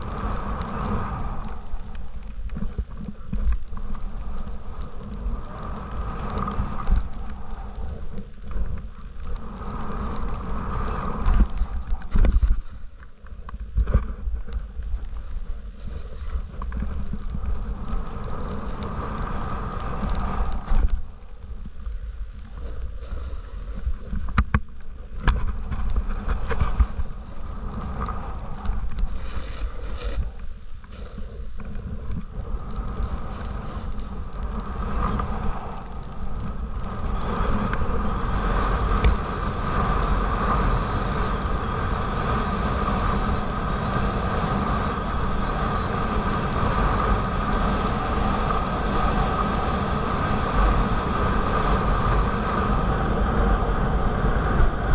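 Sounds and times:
wind buffeting microphone: 0.0s - 12.6s, 30.2s - 54.9s
snowboard scraping over snow: 0.0s - 54.9s.

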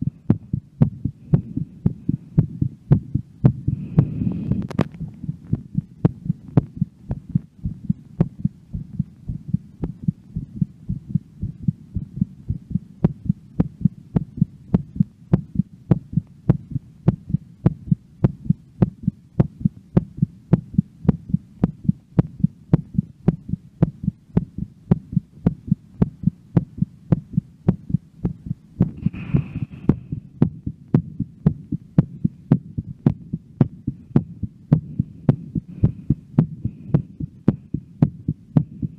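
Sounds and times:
fast heartbeat: 0.0s - 38.9s
breath: 3.7s - 4.7s, 29.0s - 30.3s, 34.8s - 37.2s.

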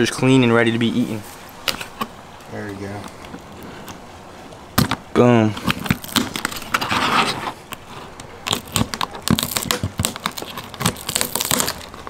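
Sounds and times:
lobster shell clicking and crackling: 5.6s - 6.9s, 7.7s - 12.0s.

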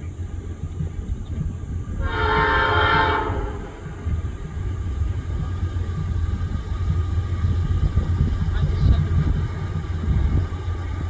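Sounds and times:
steady low rumble: 0.0s - 11.0s
locomotive air horn blast: 2.0s - 3.9s.

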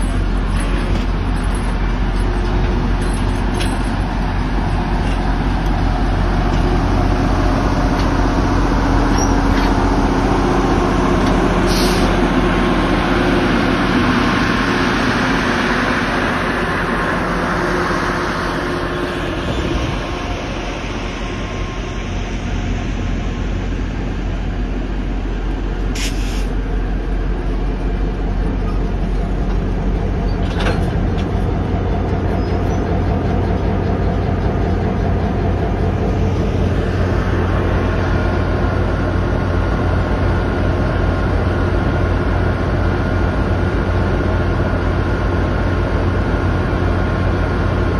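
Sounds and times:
diesel locomotive engines running: 0.0s - 47.9s
train rolling on rails: 0.0s - 47.9s.

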